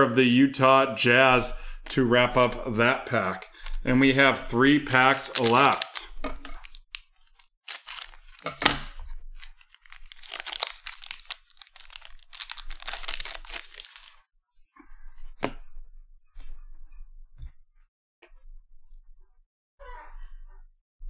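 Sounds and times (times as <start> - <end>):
foil wrapper crinkling: 4.9 - 8.8, 9.4 - 14.2.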